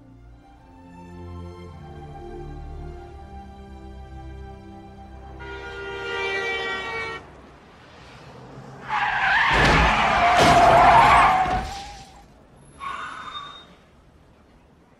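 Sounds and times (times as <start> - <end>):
film score music: 0.0 - 7.8
car tyres skidding and squealing: 7.8 - 14.1.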